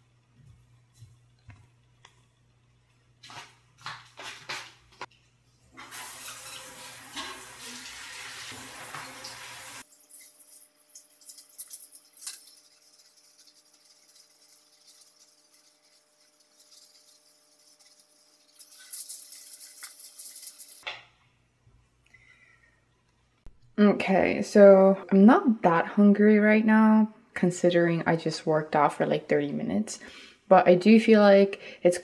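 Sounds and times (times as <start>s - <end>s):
shower water spraying: 5.8s - 20.8s.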